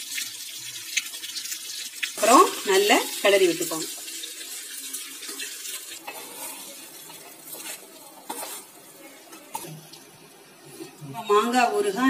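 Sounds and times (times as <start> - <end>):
faint sizzle: 0.0 - 12.0
spatula scraping in pan: 4.7 - 9.8.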